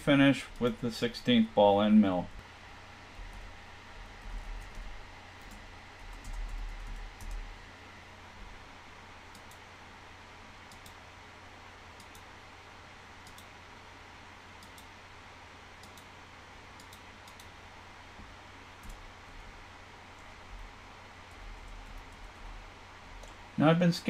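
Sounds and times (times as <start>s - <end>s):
computer mouse clicks: 9.3s - 9.6s, 10.7s - 11.0s, 12.0s - 12.3s, 13.2s - 13.5s, 14.6s - 14.9s, 15.8s - 16.1s, 16.8s - 17.5s.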